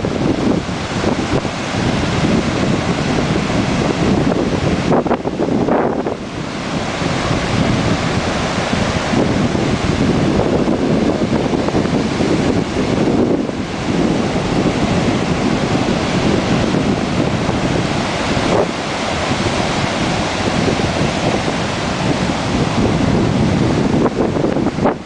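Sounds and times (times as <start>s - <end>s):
ocean surf breaking: 0.0s - 25.0s
wind buffeting microphone: 0.0s - 25.0s.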